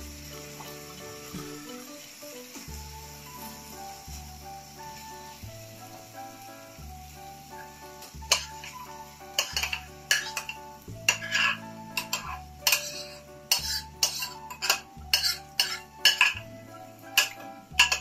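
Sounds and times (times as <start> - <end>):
background music: 0.0 - 18.0
rice pouring hiss: 0.0 - 18.0
glass bowl clinking against pan: 8.3 - 8.8, 9.4 - 16.5, 17.1 - 18.0.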